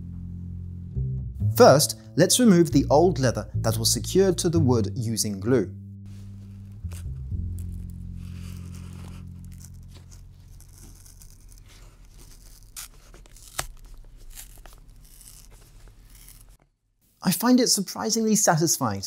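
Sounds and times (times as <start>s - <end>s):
leather tearing and crackling: 6.7s - 16.6s.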